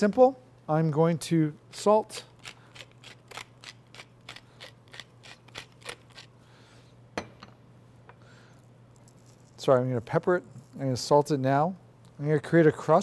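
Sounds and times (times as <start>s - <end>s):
pepper mill grinding: 1.8s - 6.3s.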